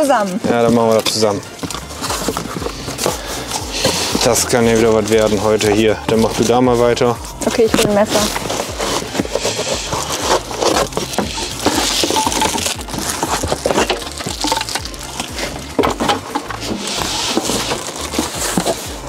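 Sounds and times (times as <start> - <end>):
background music: 0.0 - 19.0
cardboard and plastic packaging rustling: 0.0 - 19.0
metal parts clicking and knocking: 9.2 - 16.9.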